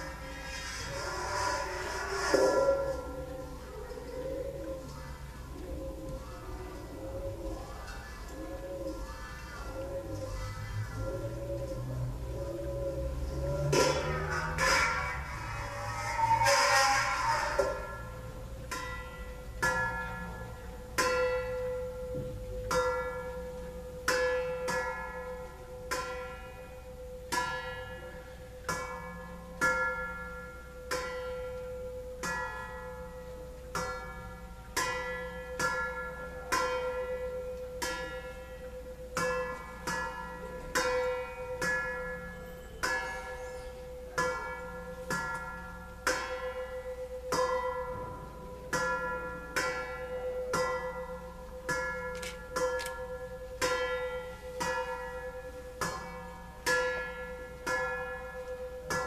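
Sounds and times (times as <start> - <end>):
metal bowls struck ringing: 0.0 - 59.0
steady ringing tone: 17.6 - 59.0.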